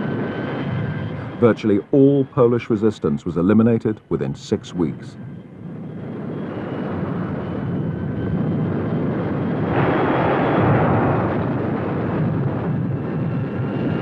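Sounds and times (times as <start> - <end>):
low rumble: 5.2 - 14.0
battle blast: 9.5 - 14.0.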